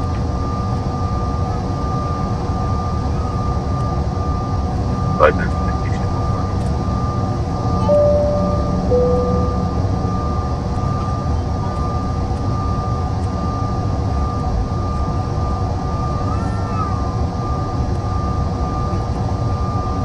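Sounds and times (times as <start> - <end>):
jet engine whine: 0.0 - 20.0
two-note falling chime: 7.8 - 10.7.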